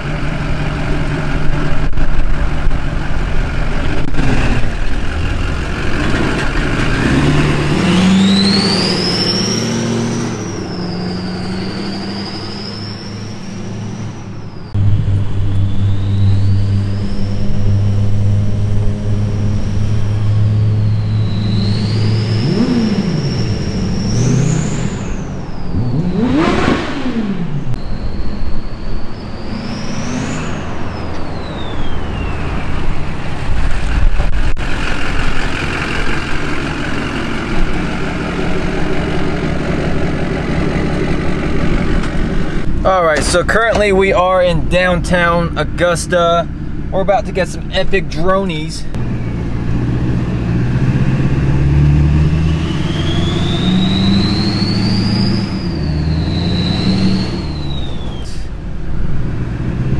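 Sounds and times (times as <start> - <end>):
diesel truck driving by: 0.0 - 59.9
high turbo whistle: 7.1 - 32.7, 48.9 - 59.2.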